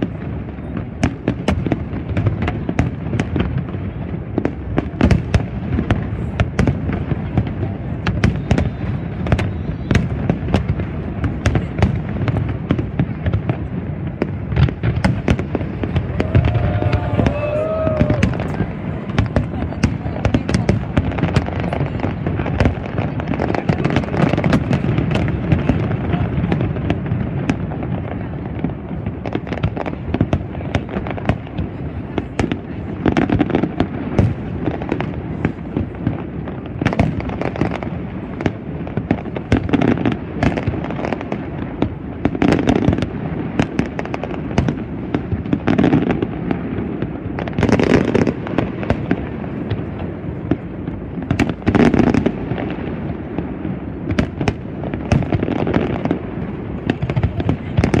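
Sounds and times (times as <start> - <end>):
fireworks bursting with sharp bangs: 0.0 - 58.0.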